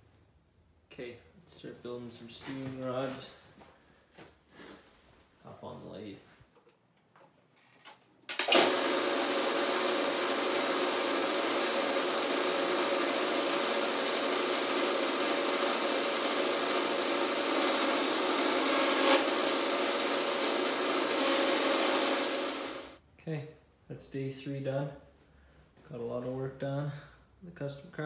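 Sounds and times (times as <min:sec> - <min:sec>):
lathe motor and cutting noise: 0:08.4 - 0:23.0.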